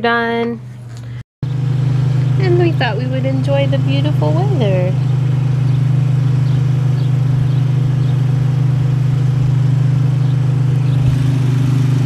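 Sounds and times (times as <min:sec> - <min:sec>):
lawn mower engine running: 0:01.4 - 0:12.0.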